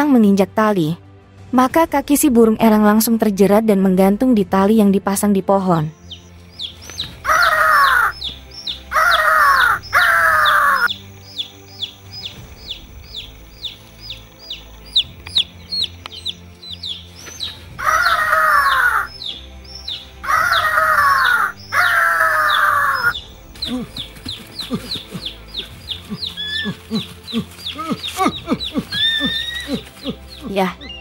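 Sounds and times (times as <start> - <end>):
faint background music: 0.0 - 31.0
louder falling bird cries: 6.9 - 10.9, 17.3 - 19.1.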